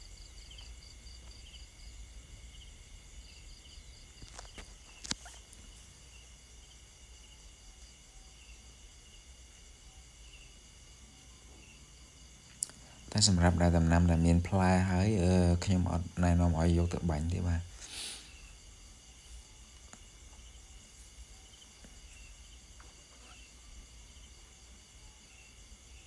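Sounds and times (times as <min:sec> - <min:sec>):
insects chirping: 0:00.0 - 0:26.0
short scattered chirps: 0:04.2 - 0:05.7.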